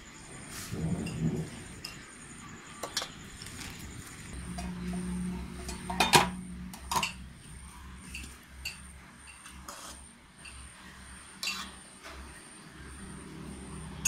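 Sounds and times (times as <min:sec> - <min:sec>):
steady low hum: 0:00.0 - 0:14.0
metal ladle clinking on pot: 0:05.6 - 0:07.2.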